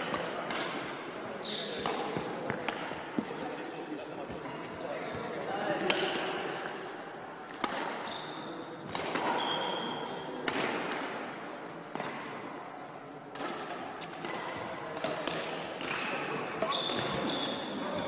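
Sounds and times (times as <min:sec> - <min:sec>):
racquets hitting shuttlecock: 0:00.0 - 0:01.2, 0:01.8 - 0:03.4, 0:05.8 - 0:06.8, 0:07.4 - 0:12.6, 0:13.3 - 0:17.4
shoes squeaking on floor: 0:01.4 - 0:02.3, 0:08.0 - 0:08.5, 0:09.3 - 0:10.1, 0:16.6 - 0:18.0.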